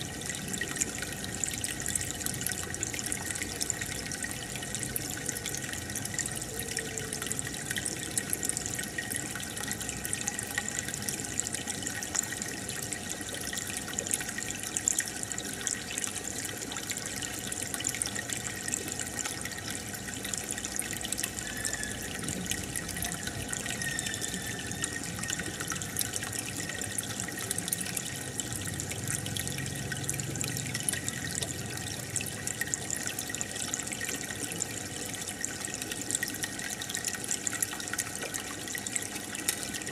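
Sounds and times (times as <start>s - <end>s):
aquarium filter water splashing: 0.0s - 39.9s.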